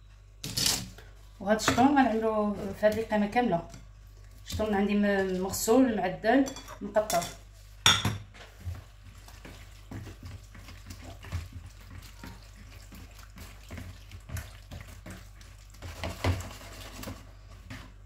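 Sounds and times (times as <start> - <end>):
hands squelching fish in marinade: 8.5 - 18.0.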